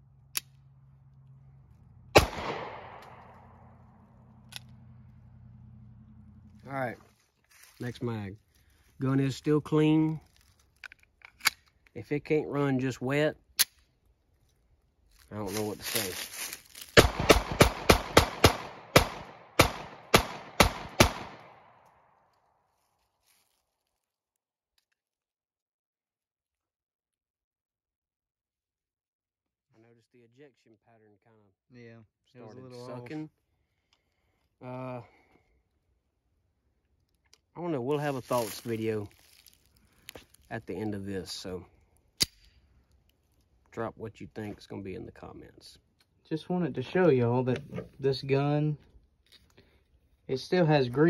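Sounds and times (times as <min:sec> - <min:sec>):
pistol shot with echo: 0:02.1 - 0:03.5, 0:17.0 - 0:21.7
sharp gun click: 0:42.2 - 0:42.5.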